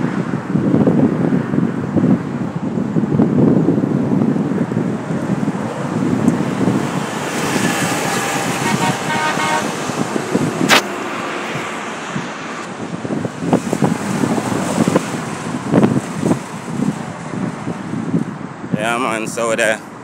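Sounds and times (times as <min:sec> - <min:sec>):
road traffic passing: 0:00.0 - 0:20.0
vehicle horn: 0:08.1 - 0:09.8
sharp click: 0:10.7 - 0:10.9.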